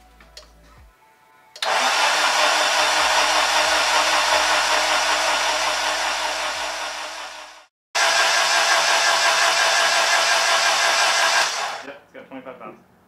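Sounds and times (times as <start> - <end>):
starter motor cranking engine: 1.6 - 11.9.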